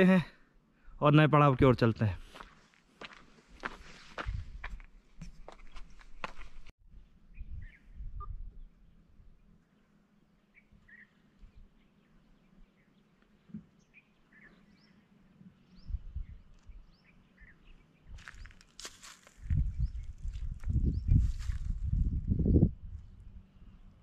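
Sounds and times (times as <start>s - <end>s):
birds chirping: 7.3s - 18.7s.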